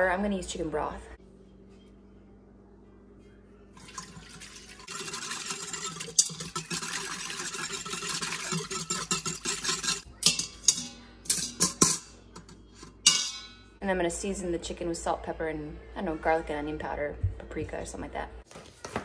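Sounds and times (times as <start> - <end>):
liquid pouring and splashing: 3.8 - 10.0.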